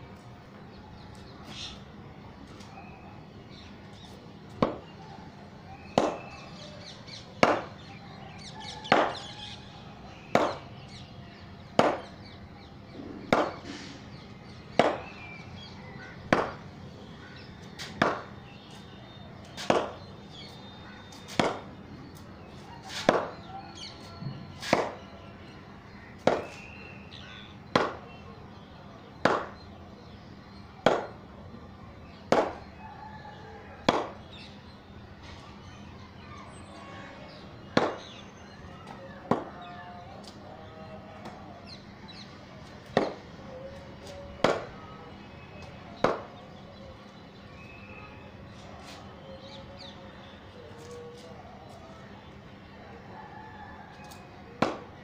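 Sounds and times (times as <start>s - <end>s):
cricket bat hitting ball: 4.6s - 4.9s, 5.9s - 6.3s, 7.4s - 7.8s, 8.8s - 9.2s, 10.3s - 10.7s, 11.7s - 12.2s, 13.2s - 13.7s, 14.7s - 15.1s, 16.3s - 16.6s, 17.9s - 18.3s, 19.6s - 20.1s, 21.3s - 21.7s, 23.0s - 23.4s, 24.6s - 25.1s, 26.2s - 26.8s, 27.7s - 28.2s, 29.2s - 29.6s, 30.8s - 31.2s, 32.2s - 32.7s, 33.8s - 34.3s, 37.8s - 38.1s, 39.3s - 39.5s, 42.9s - 43.2s, 44.4s - 44.8s, 46.0s - 46.3s, 54.6s - 54.9s.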